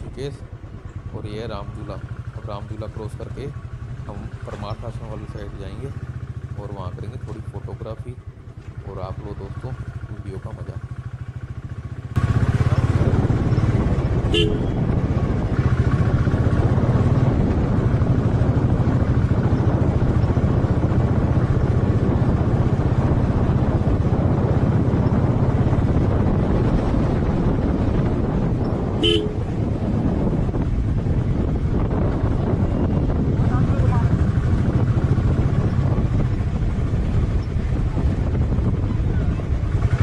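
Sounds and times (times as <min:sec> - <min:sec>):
motorcycle engine running: 0:00.0 - 0:40.0
horn toots: 0:14.2 - 0:15.0, 0:28.9 - 0:29.6.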